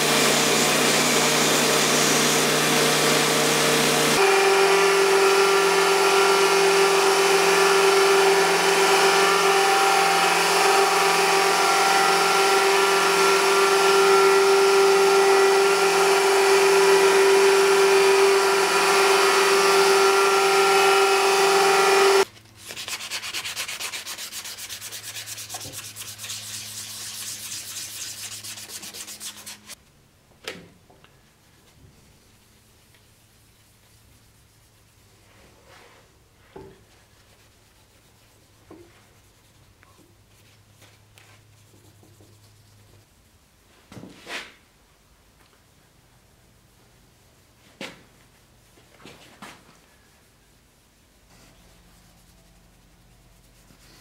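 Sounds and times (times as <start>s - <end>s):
belt grinder whining: 0.0s - 22.2s
steel grinding on abrasive belt: 0.0s - 22.2s
rubbing steel with abrasive pad: 4.1s - 29.8s.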